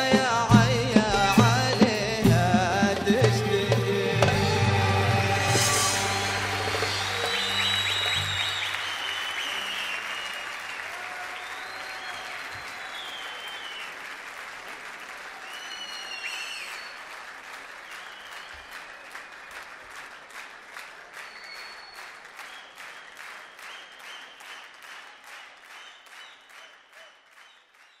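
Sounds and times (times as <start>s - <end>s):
rhythmic clapping in unison: 0.0s - 28.0s
audience applauding: 3.1s - 28.0s
whistles from crowd: 5.6s - 14.0s, 15.3s - 17.2s, 17.8s - 19.7s, 21.1s - 24.9s, 25.6s - 28.0s.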